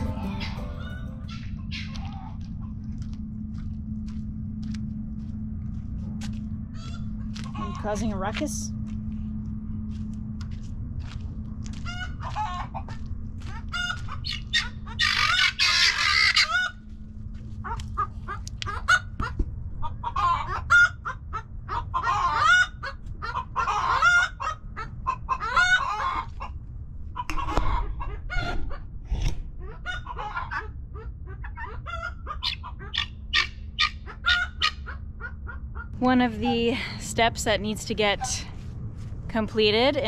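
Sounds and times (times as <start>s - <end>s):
chickens clucking and calling: 0.0s - 2.4s, 11.8s - 16.8s, 17.7s - 26.6s, 29.7s - 35.9s.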